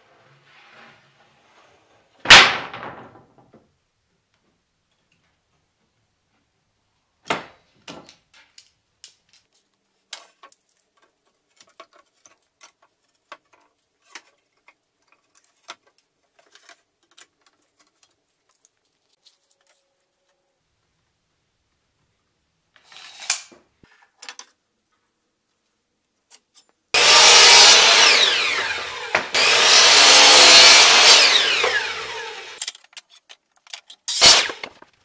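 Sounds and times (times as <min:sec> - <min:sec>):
tools clicking and tapping: 0:32.6 - 0:34.2.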